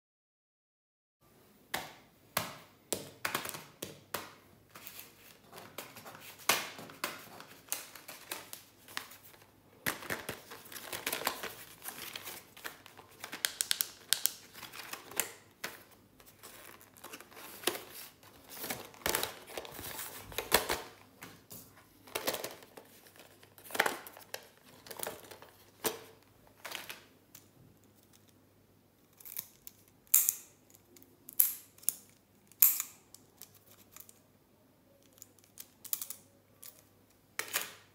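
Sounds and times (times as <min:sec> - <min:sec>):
plastic packaging crinkling: 0:04.7 - 0:27.1.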